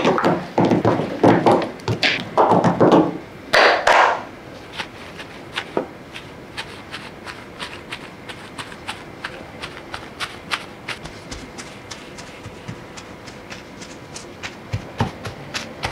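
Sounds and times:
paper towel patting: 0:04.5 - 0:15.9
potato sticks thudding onto paper: 0:04.8 - 0:15.9.

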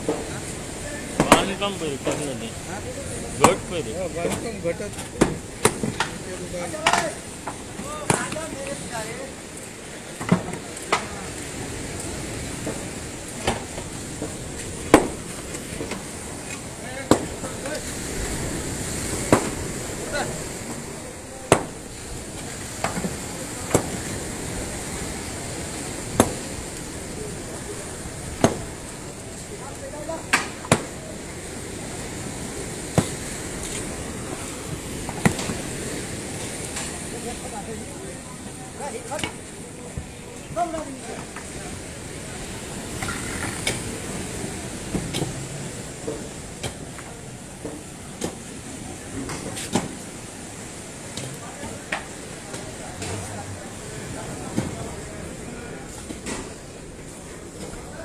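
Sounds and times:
surf washing: 0:00.0 - 0:58.0
wind: 0:00.0 - 0:58.0.

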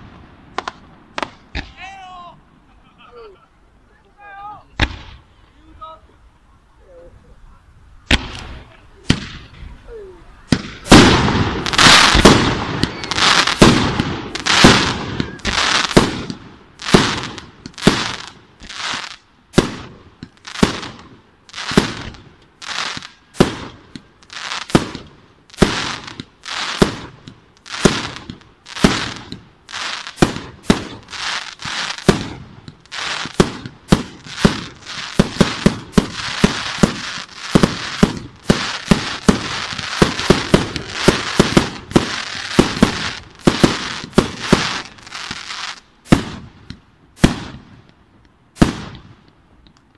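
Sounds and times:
firework shells bursting: 0:24.7 - 0:45.4.

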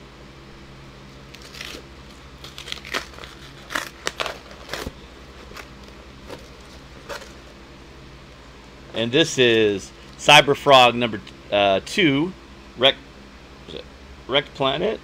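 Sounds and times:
cardboard and paper rustling: 0:01.4 - 0:07.5.

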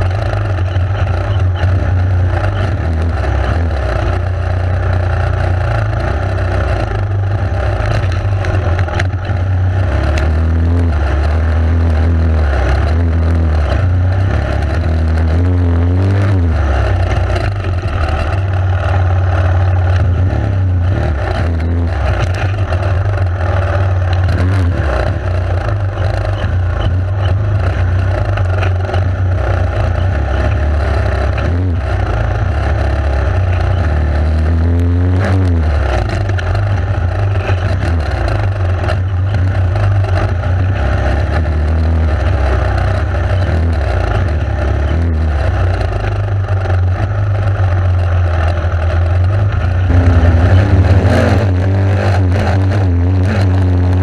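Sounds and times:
motorcycle engine revving: 0:00.0 - 0:54.0
steady low rumble: 0:00.0 - 0:54.0.

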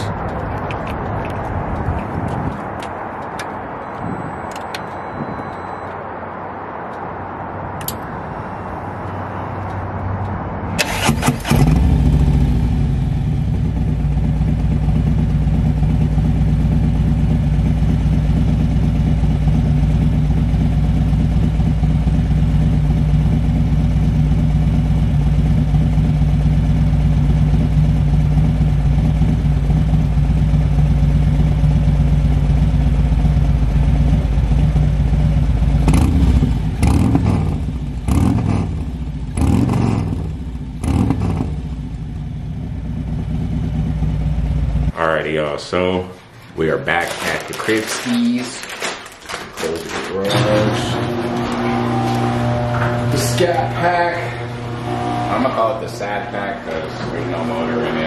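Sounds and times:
motorcycle starter cranking: 0:10.8 - 0:11.9
motorcycle engine idling loudly: 0:11.6 - 0:44.9.

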